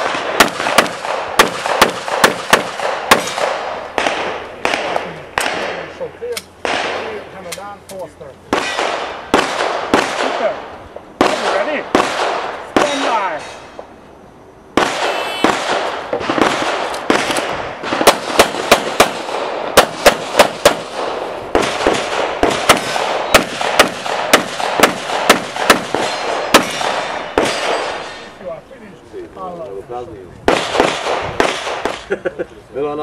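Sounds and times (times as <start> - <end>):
handgun shots: 0.0 - 7.6, 19.8 - 28.2.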